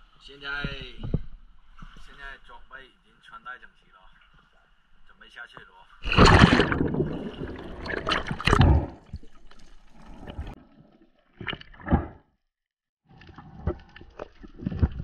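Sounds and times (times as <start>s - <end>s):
splashing and rush of bubbles: 6.0s - 12.3s, 13.1s - 15.0s.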